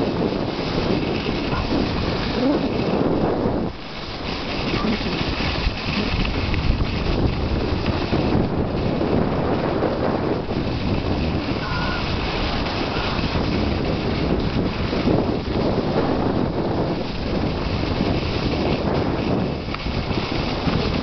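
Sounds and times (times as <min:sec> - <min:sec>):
wind rushing over microphone: 0:00.0 - 0:21.0
hiss of sliding over snow: 0:00.3 - 0:08.4, 0:10.5 - 0:13.9.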